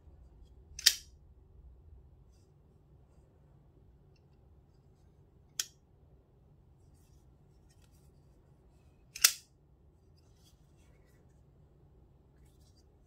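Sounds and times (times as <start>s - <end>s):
folding knife blade snapping: 0.8s - 1.1s, 9.2s - 9.4s.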